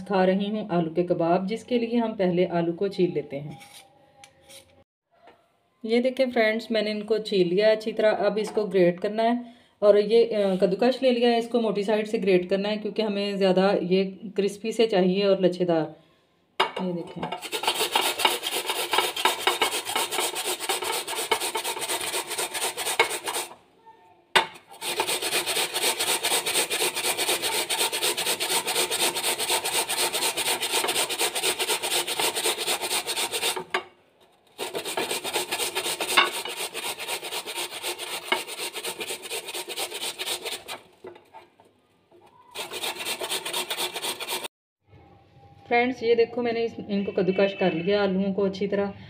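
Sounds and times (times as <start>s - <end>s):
potatoes grated on metal grater: 17.3s - 23.6s, 24.6s - 33.8s, 34.4s - 41.4s, 42.4s - 44.5s.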